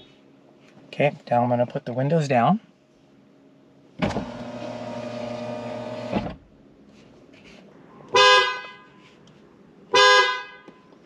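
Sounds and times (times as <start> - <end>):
window stopping with a clunk: 4.0 - 4.5
power window motor: 4.0 - 6.4
car horn blast: 8.1 - 9.0, 9.9 - 10.9.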